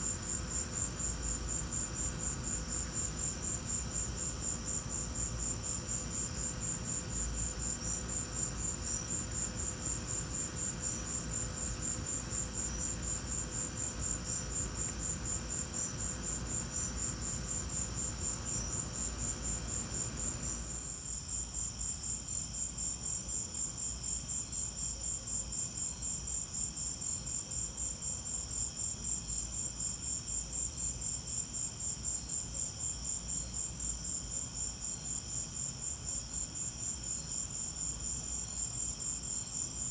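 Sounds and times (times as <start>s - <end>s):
crickets chirping: 0.0s - 39.9s.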